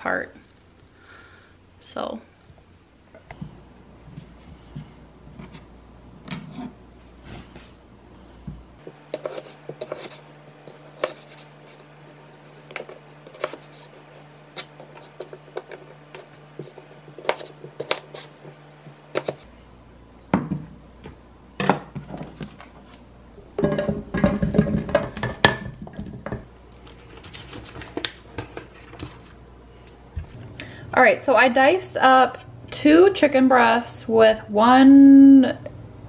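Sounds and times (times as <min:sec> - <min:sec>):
knife cutting on plastic board: 0:09.1 - 0:11.9, 0:12.6 - 0:19.4.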